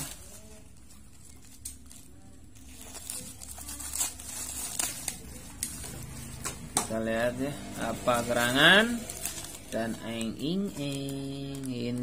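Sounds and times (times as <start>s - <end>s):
plastic bag crinkling: 0.0s - 6.4s, 7.9s - 12.0s
scissors cutting plastic: 0.0s - 6.9s.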